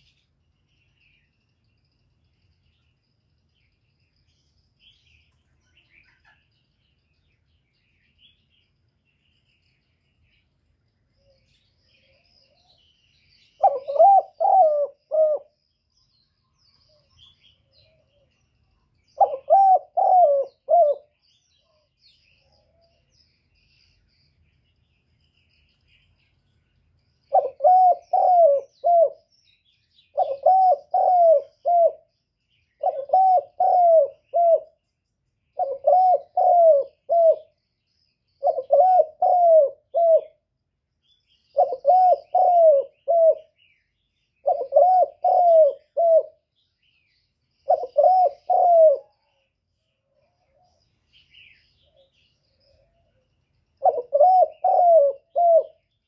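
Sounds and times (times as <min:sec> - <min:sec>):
small birds chirping: 0:00.0 - 0:56.0
dove cooing: 0:13.5 - 0:15.6, 0:19.2 - 0:21.8, 0:27.3 - 0:29.3, 0:30.1 - 0:32.1, 0:32.8 - 0:34.8, 0:35.6 - 0:37.6, 0:38.4 - 0:40.4, 0:41.5 - 0:43.6, 0:44.4 - 0:46.4, 0:47.6 - 0:49.4, 0:53.8 - 0:55.8.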